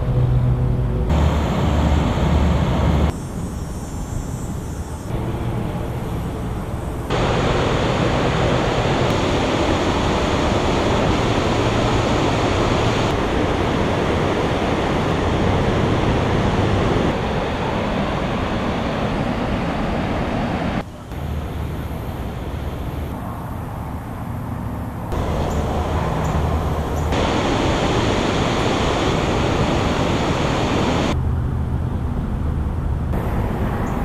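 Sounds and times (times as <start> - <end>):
river water rushing: 1.1 - 3.1, 5.2 - 23.2, 25.1 - 31.2.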